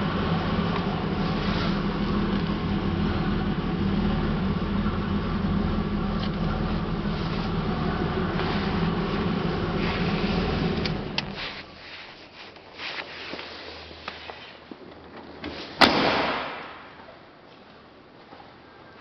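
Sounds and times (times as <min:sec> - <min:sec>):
car engine idling: 0:00.0 - 0:11.8.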